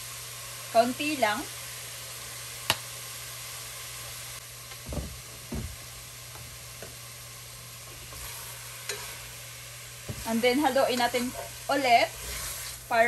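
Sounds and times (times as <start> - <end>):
food sizzling in a pot: 0.0 - 13.0
soft low thumps: 4.9 - 5.8.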